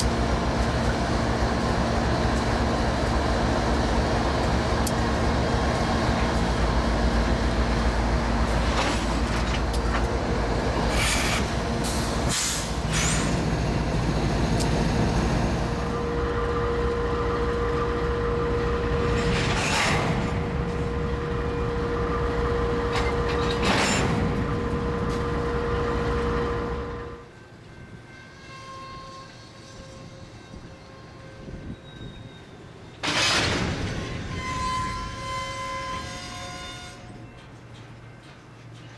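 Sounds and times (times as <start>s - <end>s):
diesel locomotives rumbling: 0.0s - 38.9s
rail yard background: 0.0s - 38.9s
short sharp train noises: 10.8s - 13.6s.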